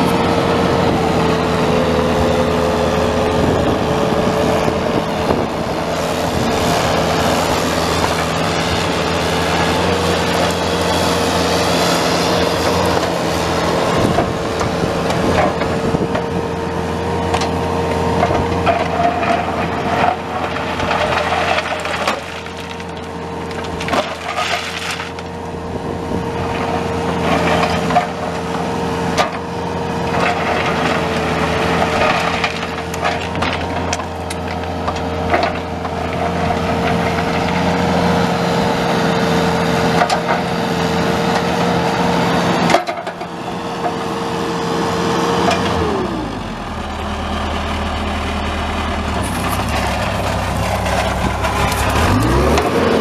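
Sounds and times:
diesel engine high whine: 0.0s - 53.0s
crunching and scraping: 17.2s - 25.6s, 26.4s - 38.0s, 45.4s - 53.0s.

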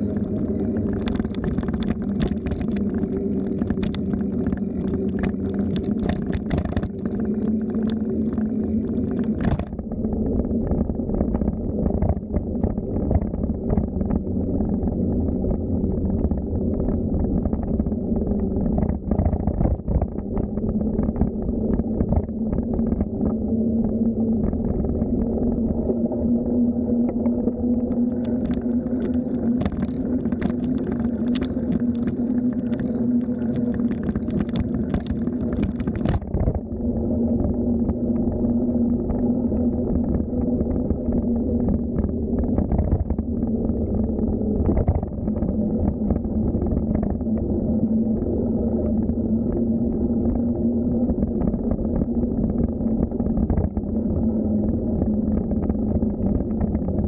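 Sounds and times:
small clicks and rattles: 0.0s - 9.9s, 27.1s - 36.7s
low hum: 0.0s - 57.0s
wind rumble: 0.0s - 57.0s.

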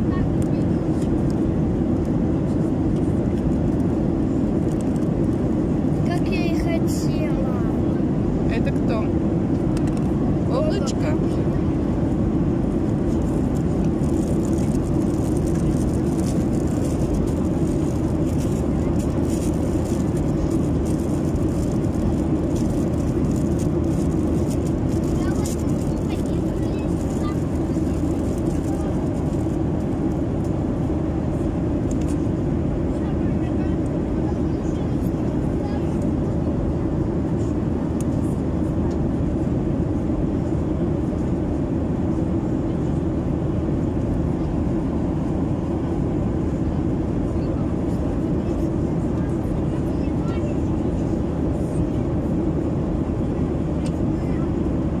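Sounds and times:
airliner cabin roar: 0.0s - 55.0s.

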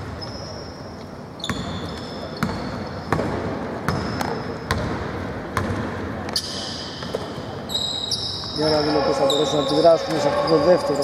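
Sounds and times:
hall background noise: 0.0s - 11.0s
sneakers squeaking on floor: 0.0s - 11.0s
basketball bouncing: 1.4s - 6.0s.

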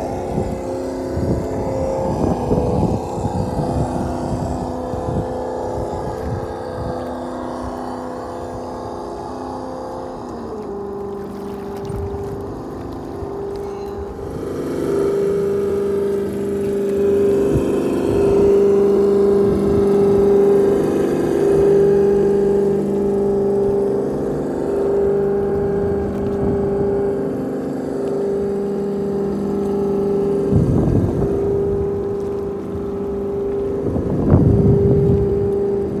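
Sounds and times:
electric motor whining: 0.0s - 36.0s
noisy rush: 0.0s - 36.0s.

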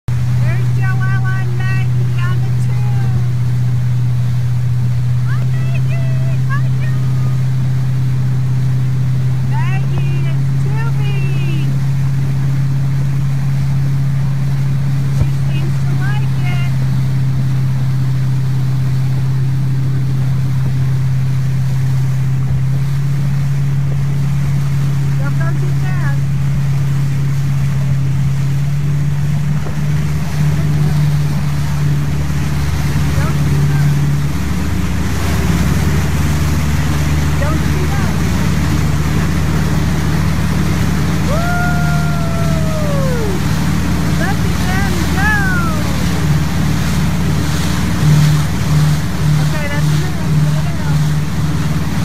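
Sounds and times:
motorboat engine running: 0.0s - 52.0s
water rushing in wake: 0.0s - 52.0s
long high call: 40.9s - 46.6s.

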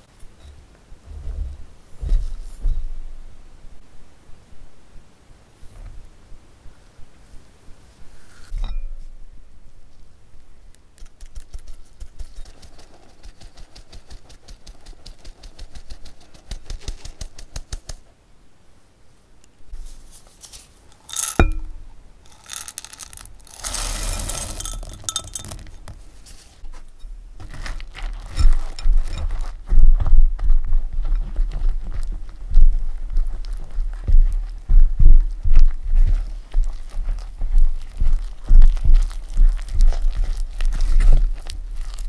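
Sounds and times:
sharp clink: 8.6s - 9.0s, 21.0s - 23.2s
chocolate chunks rattling into bowl: 21.0s - 21.7s, 22.3s - 26.0s
spatula stirring dry mix: 22.3s - 26.6s, 27.4s - 29.6s, 36.2s - 42.0s.

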